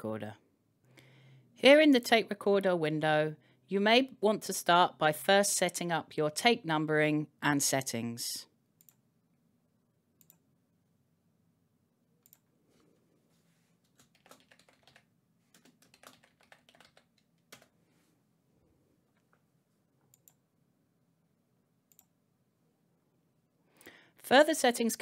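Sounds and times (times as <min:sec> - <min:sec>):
keyboard typing: 0:13.8 - 0:17.8.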